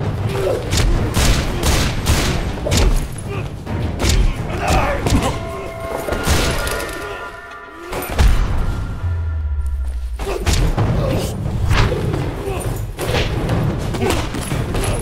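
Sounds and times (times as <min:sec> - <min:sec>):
music score: 0:04.5 - 0:10.9
whooshes: 0:04.7 - 0:11.9
sustained musical chord: 0:05.0 - 0:10.2.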